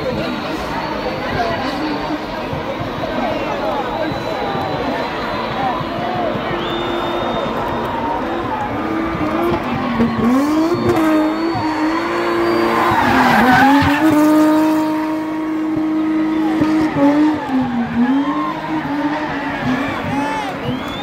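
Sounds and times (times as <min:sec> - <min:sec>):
car engine at high revs: 0:00.0 - 0:21.0
tyres squealing: 0:09.9 - 0:14.5.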